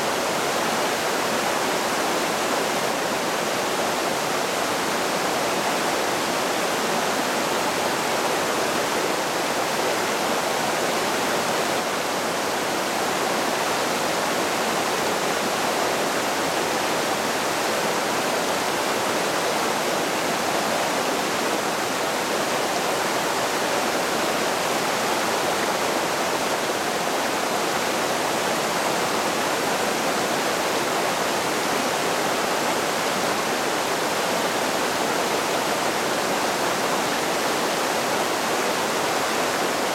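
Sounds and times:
creek rushing over rocks: 0:00.0 - 0:39.9.

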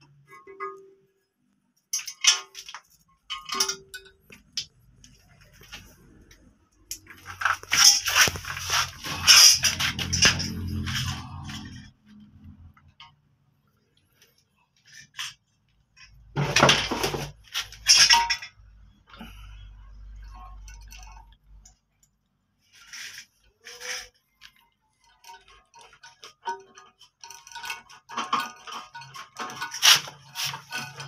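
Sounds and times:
porcelain and plastic clinks: 0:01.9 - 0:05.9, 0:16.2 - 0:22.2, 0:23.7 - 0:31.0.

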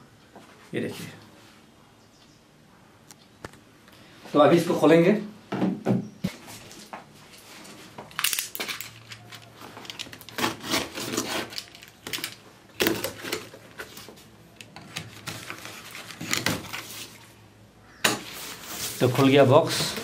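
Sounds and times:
cardboard rustling: 0:08.6 - 0:17.4, 0:18.2 - 0:20.0
box cutter slicing packing tape: 0:10.2 - 0:11.8.

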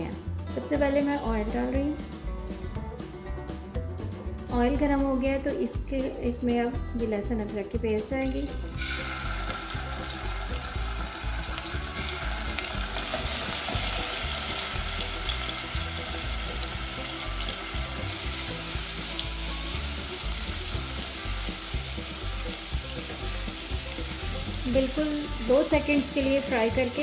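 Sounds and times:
paste sizzling in hot oil: 0:08.7 - 0:27.0.

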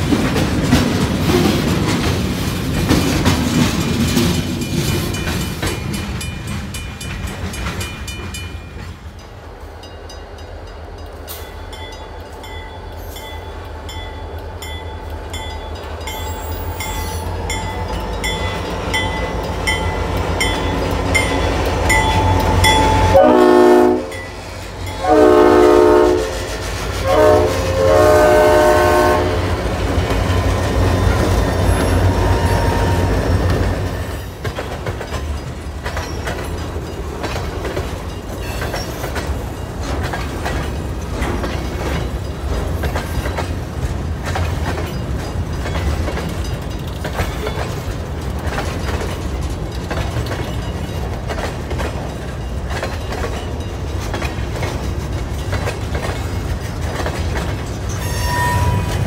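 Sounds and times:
locomotive horn blasts: 0:22.2 - 0:24.3, 0:24.9 - 0:29.7, 0:58.0 - 0:59.0.

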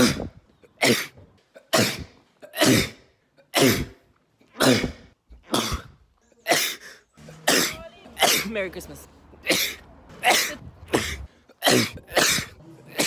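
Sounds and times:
man sneezing: 0:09.6 - 0:13.0.

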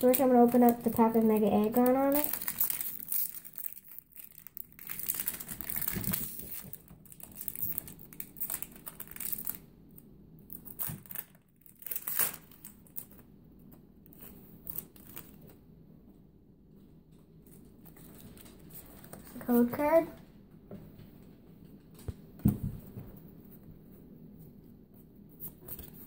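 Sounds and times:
foil wrapper crinkling and tearing: 0:00.0 - 0:09.7, 0:10.5 - 0:13.3, 0:14.1 - 0:15.5.

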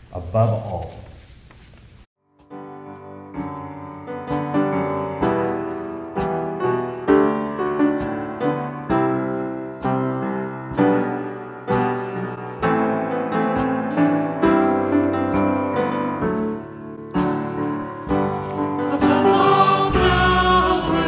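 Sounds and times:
slow piano chords: 0:02.4 - 0:21.0.

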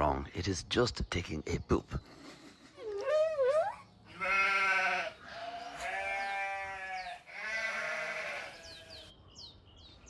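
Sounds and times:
drawn-out bleating cries: 0:04.0 - 0:09.1.

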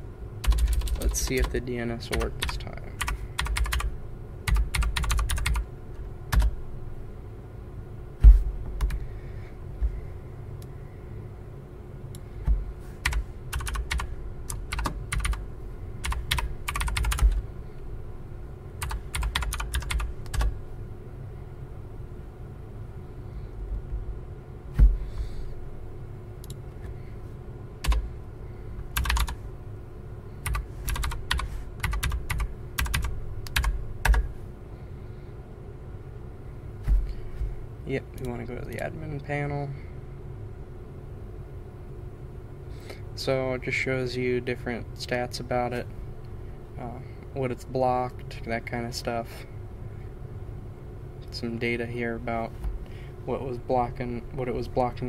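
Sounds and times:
steady low hum: 0:00.0 - 0:55.0
typing on computer keyboard: 0:00.4 - 0:03.9, 0:04.5 - 0:05.6, 0:13.0 - 0:15.4, 0:16.0 - 0:17.4, 0:18.8 - 0:20.5, 0:29.0 - 0:29.4, 0:30.5 - 0:34.3
heavier thumps: 0:08.2 - 0:08.8, 0:24.7 - 0:25.2, 0:36.8 - 0:37.5.

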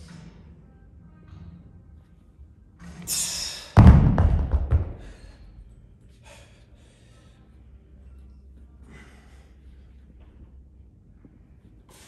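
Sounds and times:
heavy thud: 0:03.8 - 0:05.2.

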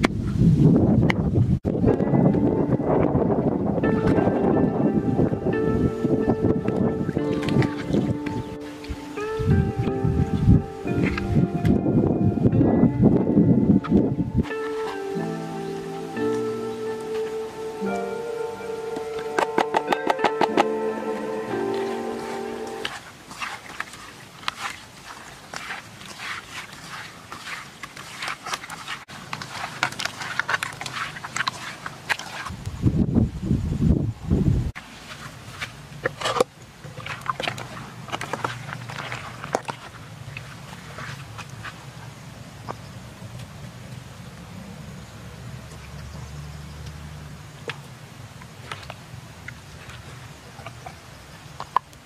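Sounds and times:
hands kneading wet fish: 0:06.6 - 0:10.0, 0:19.0 - 0:32.8, 0:34.8 - 0:44.0, 0:45.7 - 0:52.0.

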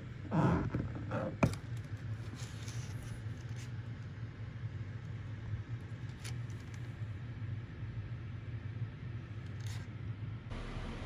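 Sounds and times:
cooler humming: 0:10.4 - 0:11.0.

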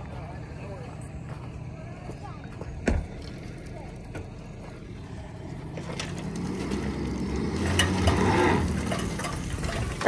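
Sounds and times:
pickup truck engine straining: 0:00.0 - 0:10.0.

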